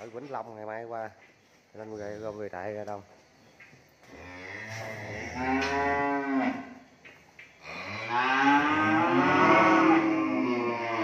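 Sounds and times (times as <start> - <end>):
cattle mooing: 4.2 - 6.8, 7.6 - 11.0.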